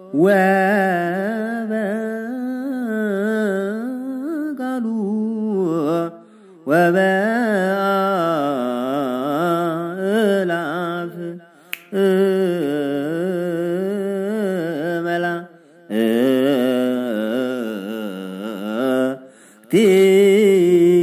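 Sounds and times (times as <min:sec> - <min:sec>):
slow liturgical chant: 0:00.0 - 0:21.0
sharp click: 0:11.7 - 0:12.0.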